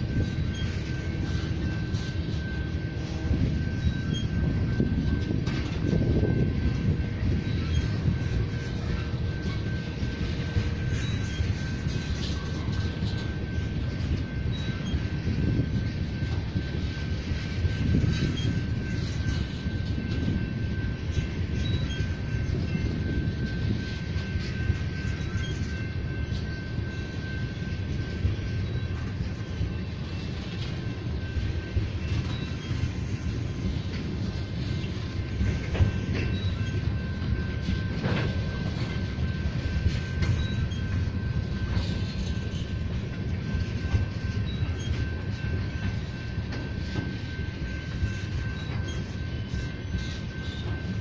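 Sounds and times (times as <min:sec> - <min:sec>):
freight train wheels rumbling: 0:00.0 - 0:51.0
thin high whine: 0:00.0 - 0:51.0.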